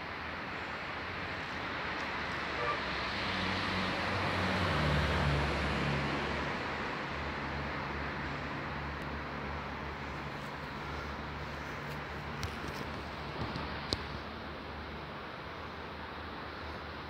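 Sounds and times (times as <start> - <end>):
highway traffic noise: 0.0 - 17.0
vehicle engine passing: 2.3 - 6.6.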